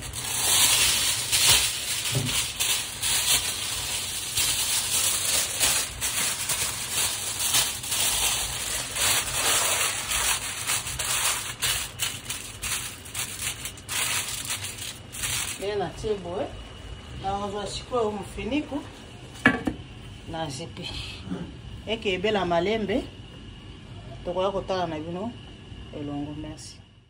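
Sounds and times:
dry rice grains rattling: 0:00.0 - 0:15.7.

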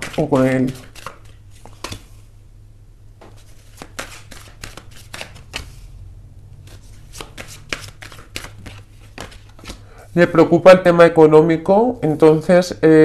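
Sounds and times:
cards being shuffled: 0:00.0 - 0:02.3, 0:03.2 - 0:06.0, 0:06.6 - 0:10.4
low steady hum: 0:00.0 - 0:13.0.

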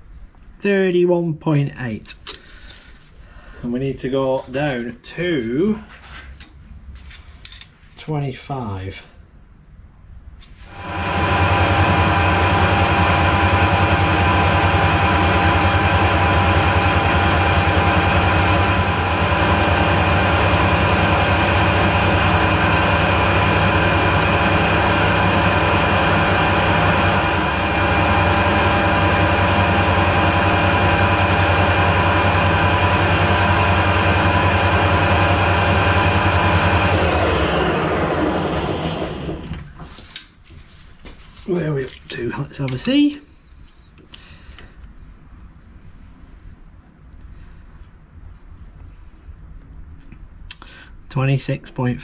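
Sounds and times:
lathe tool cutting steel bar: 0:10.7 - 0:39.4
lathe humming: 0:10.7 - 0:39.6.

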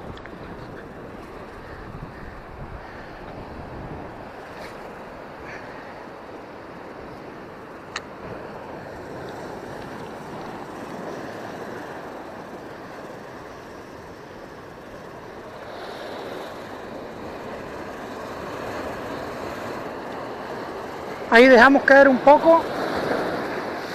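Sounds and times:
wind buffeting microphone: 0:00.0 - 0:23.9
surf breaking over rocks: 0:15.2 - 0:23.9.

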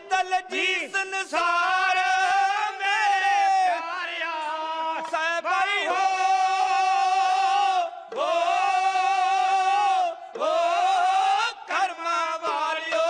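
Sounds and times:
men singing in unison: 0:00.0 - 0:13.0.

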